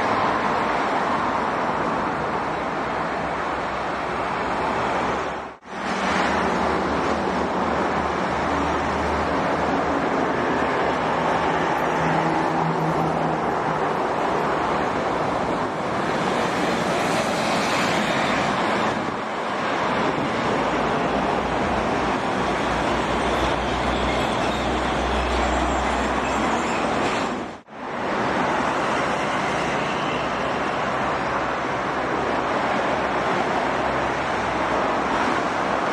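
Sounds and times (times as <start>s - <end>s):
traffic tyres and engines: 0.0s - 35.9s.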